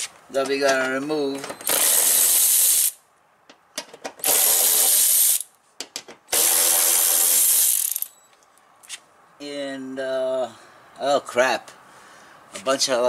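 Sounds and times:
cordless electric ratchet spinning: 1.7 - 3.0, 4.2 - 5.5, 6.3 - 8.1.

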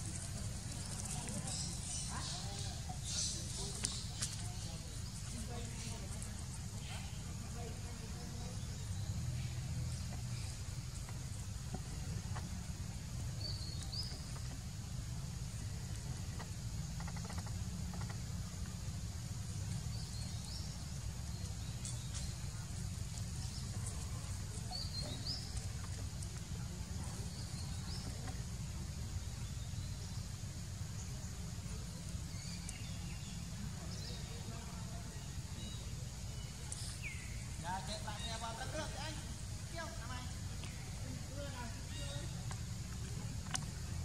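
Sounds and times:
high insect hum: 0.0 - 44.0
bird chirping: 29.3 - 43.7.

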